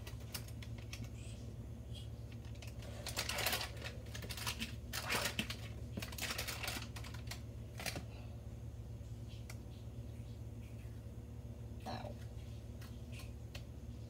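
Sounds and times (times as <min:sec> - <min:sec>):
foil and plastic crinkling: 0:02.4 - 0:08.0.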